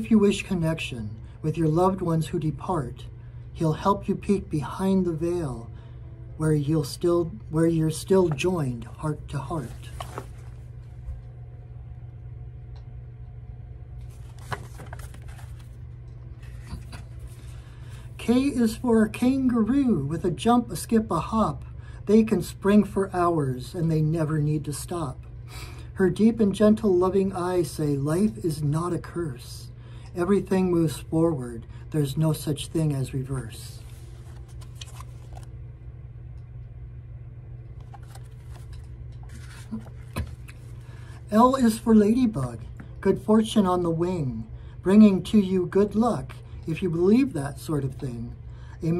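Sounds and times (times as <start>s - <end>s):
low background hum: 0.0s - 48.9s
paper book rustling and clicking: 9.6s - 11.2s, 14.0s - 15.8s, 33.8s - 35.5s, 37.8s - 40.8s.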